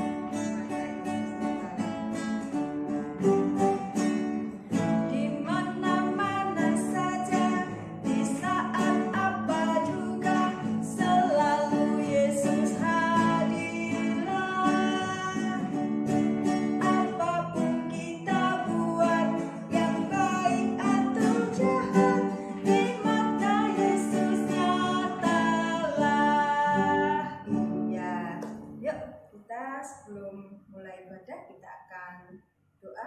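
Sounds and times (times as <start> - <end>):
strummed acoustic guitar: 0.0 - 28.8
woman singing a hymn: 5.1 - 15.7, 16.8 - 28.4.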